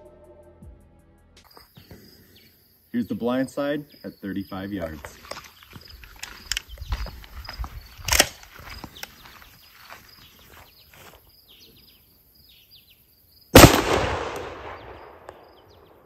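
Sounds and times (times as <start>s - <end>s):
handling clicks and rustles: 4.8s - 11.1s
shotgun shot: 13.6s - 15.6s.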